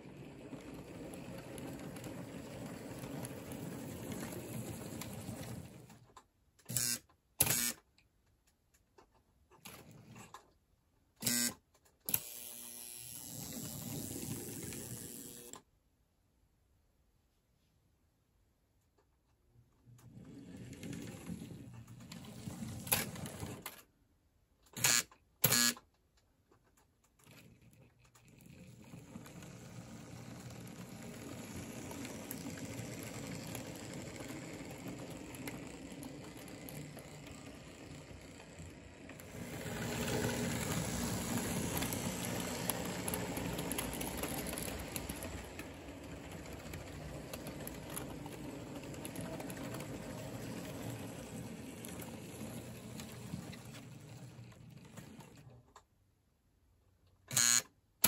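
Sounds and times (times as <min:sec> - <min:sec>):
model train wheels clattering on track: 0:00.0 - 0:06.3, 0:20.0 - 0:23.8, 0:27.2 - 0:55.9.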